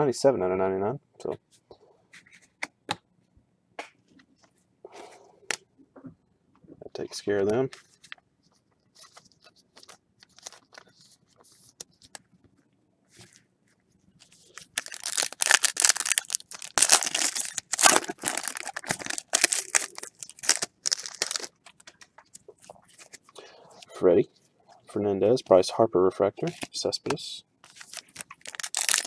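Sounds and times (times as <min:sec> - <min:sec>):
wrapper ripping and crinkling: 0:09.0 - 0:10.9, 0:14.2 - 0:22.0, 0:27.7 - 0:29.0.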